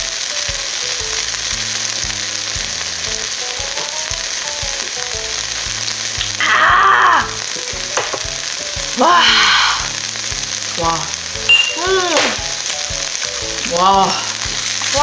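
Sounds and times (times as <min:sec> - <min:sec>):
background tune: 0:00.0 - 0:15.0
meat sizzling on a grill pan: 0:00.0 - 0:15.0
person shouting: 0:06.4 - 0:07.5, 0:08.9 - 0:10.0, 0:11.8 - 0:12.4, 0:13.6 - 0:15.0.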